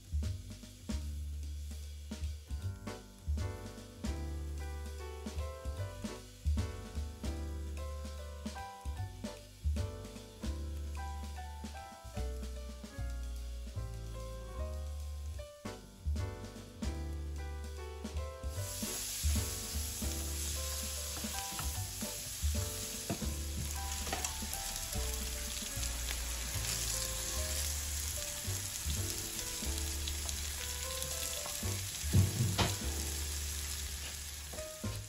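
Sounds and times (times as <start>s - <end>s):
low music bass line: 0.0s - 35.0s
food sizzling in a pot: 18.5s - 35.0s
utensil knocking against pot: 32.1s - 32.8s.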